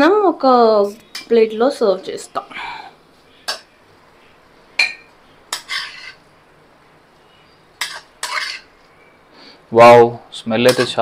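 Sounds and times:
metal spatula clinking on dishes: 3.4 - 3.7, 4.8 - 6.2, 7.8 - 8.7, 10.6 - 11.0.

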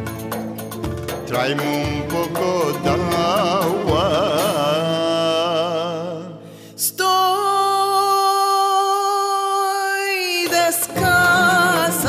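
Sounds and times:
low instrumental accompaniment: 0.0 - 6.3
man singing: 1.2 - 12.0.

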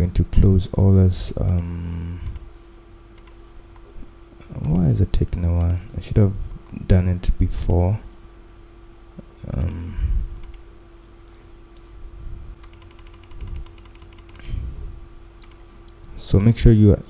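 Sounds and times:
faint hum: 0.0 - 17.0
mouse scroll wheel clicking: 12.6 - 14.5, 15.4 - 15.6.

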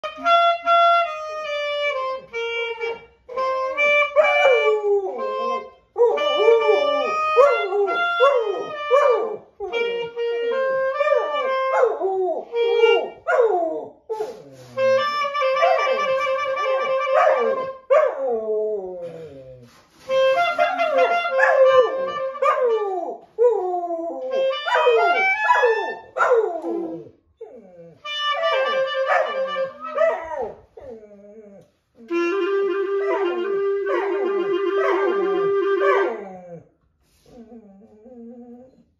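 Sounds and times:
clarinet held notes: 0.0 - 37.7
dog howling: 6.0 - 9.4.

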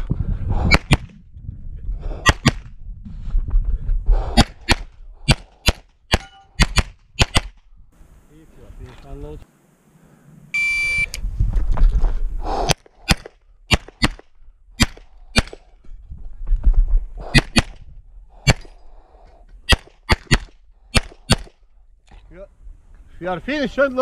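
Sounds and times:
shot timer beep: 10.6 - 11.2.

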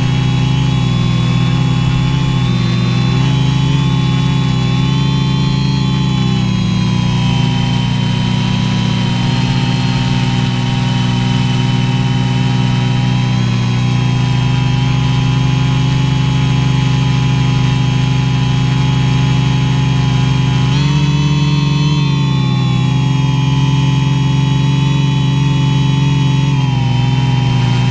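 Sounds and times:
drone propellers whining: 0.0 - 27.9.

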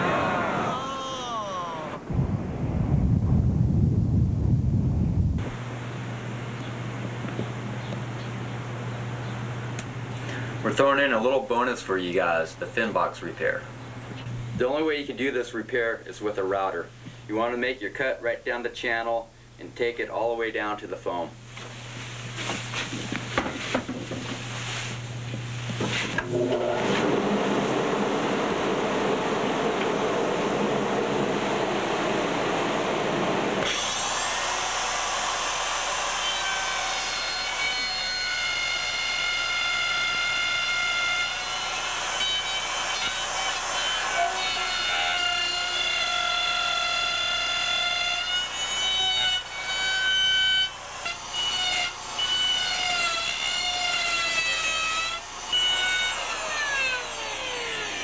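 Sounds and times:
steady rushing noise: 1.8 - 7.7
router high-pitched whine: 26.1 - 58.0.

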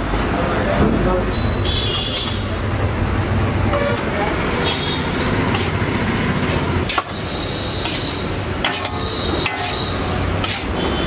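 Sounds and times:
metal spatulas scraping a wok: 3.7 - 11.0.

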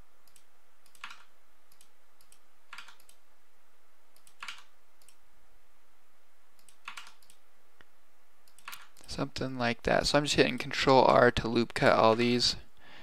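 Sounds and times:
faint microphone hiss: 0.0 - 13.0
mouse and keyboard clicks: 0.3 - 3.2, 4.2 - 5.2, 6.6 - 7.4, 8.5 - 9.1.

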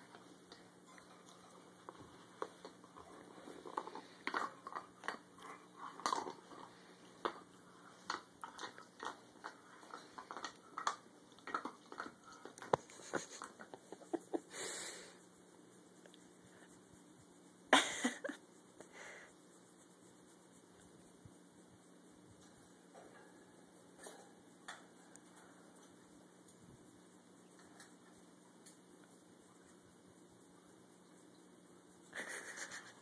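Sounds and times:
puppy gnawing on antler: 0.1 - 14.2.

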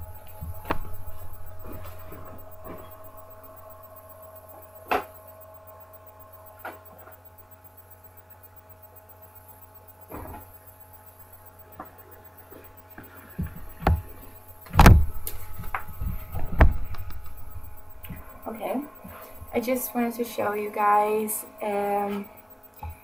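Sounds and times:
low steady hum: 0.0 - 23.0
thumps and rustles of handling: 0.2 - 3.1, 12.6 - 18.3.

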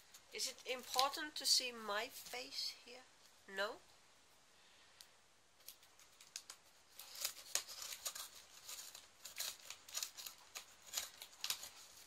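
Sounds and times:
packing tape being cut: 6.2 - 12.0.

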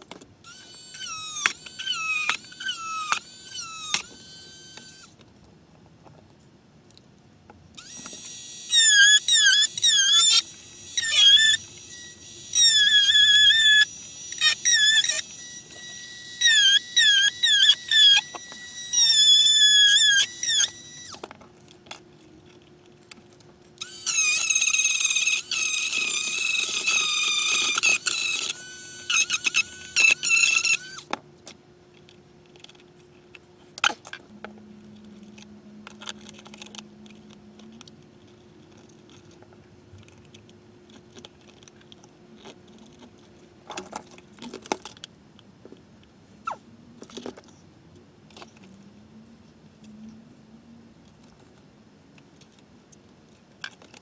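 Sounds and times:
rotary tool cutting plastic: 0.0 - 5.2, 7.8 - 45.1, 53.6 - 54.0.

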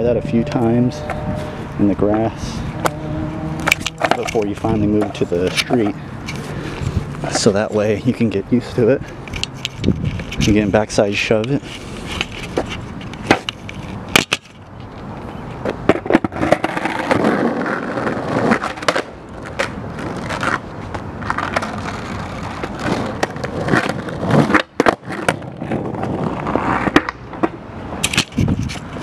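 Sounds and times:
skateboard wheels grinding on asphalt: 0.0 - 29.0
skateboard clacks: 12.2 - 14.4, 15.6 - 29.0.

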